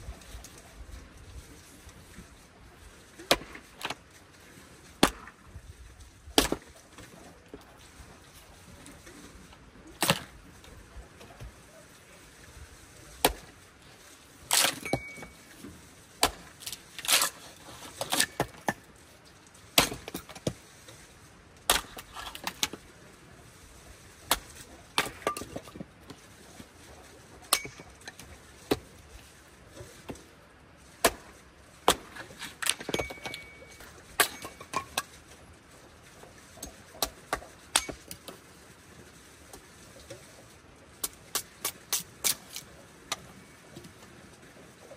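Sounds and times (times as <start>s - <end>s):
hatchet chopping wood: 3.3s - 4.0s, 5.0s - 5.4s, 6.4s - 6.7s, 16.2s - 17.3s, 19.8s - 20.5s, 31.0s - 33.5s.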